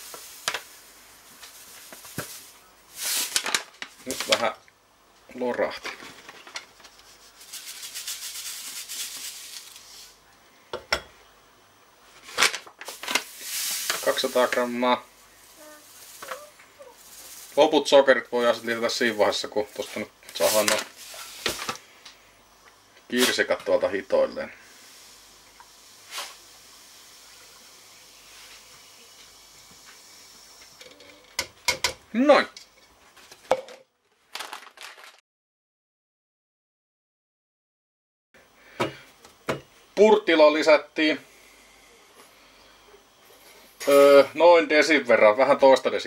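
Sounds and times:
sugar pouring into paper bag: 0:00.0 - 0:04.6, 0:06.2 - 0:10.2, 0:12.3 - 0:21.8, 0:34.3 - 0:35.2
sugar pouring into jar: 0:07.2 - 0:10.1.

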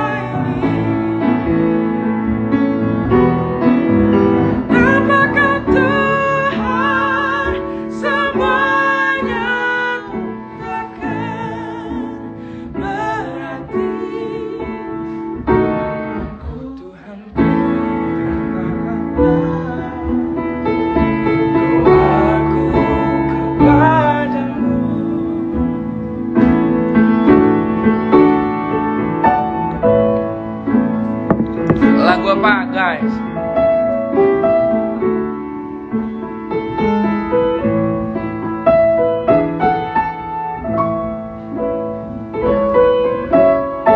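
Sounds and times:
piano accompaniment: 0:00.0 - 0:43.9
person singing worship song: 0:16.4 - 0:25.6.

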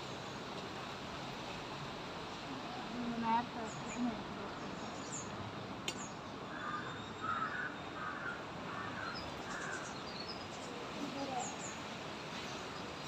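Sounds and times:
outdoor background noise: 0:00.0 - 0:13.0
crow cawing: 0:06.5 - 0:09.8.

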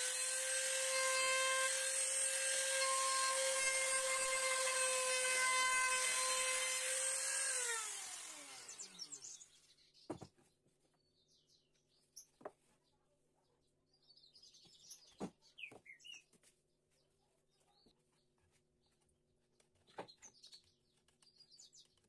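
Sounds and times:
trim router running and winding down: 0:00.0 - 0:09.4
birds chirping: 0:08.5 - 0:12.5.

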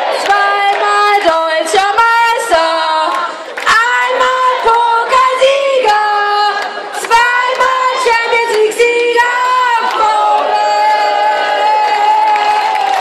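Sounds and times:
women singing: 0:00.0 - 0:13.0
claps or beats: 0:00.1 - 0:01.4.

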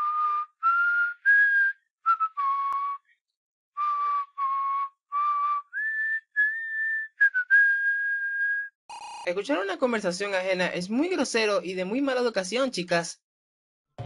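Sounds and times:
person whistling a tune: 0:00.0 - 0:03.2, 0:03.8 - 0:08.8.

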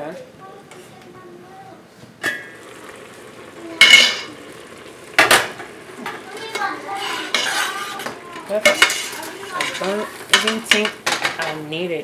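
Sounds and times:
metal lid clinking: 0:03.8 - 0:04.3, 0:05.2 - 0:11.6
spoon knocking and scraping pot: 0:05.2 - 0:11.6.

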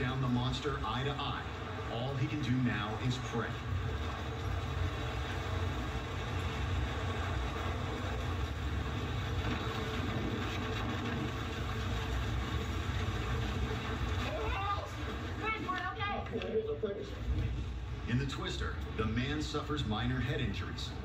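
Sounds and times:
tornado wind buffeting microphone: 0:00.0 - 0:16.5.

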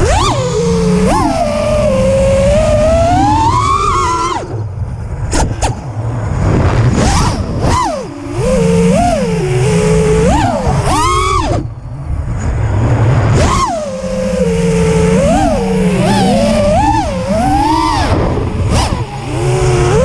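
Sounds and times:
drone motors whining: 0:00.0 - 0:20.0
short blips: 0:06.8 - 0:12.5, 0:13.2 - 0:20.0.

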